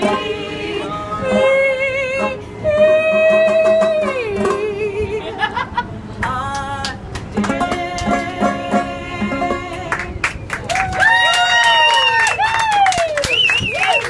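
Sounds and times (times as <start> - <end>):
banjo: 0.0 - 5.0, 7.2 - 10.2
woman singing long notes: 0.0 - 5.3.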